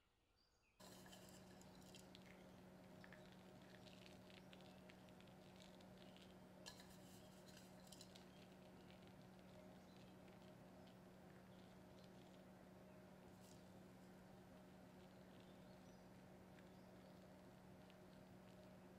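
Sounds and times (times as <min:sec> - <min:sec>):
steady low hum: 0:00.8 - 0:18.9.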